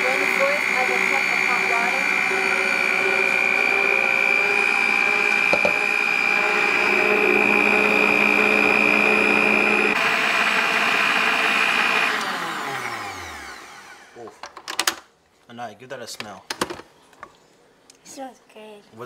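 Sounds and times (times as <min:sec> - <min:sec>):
electric mixer motor whine: 0:00.0 - 0:14.2.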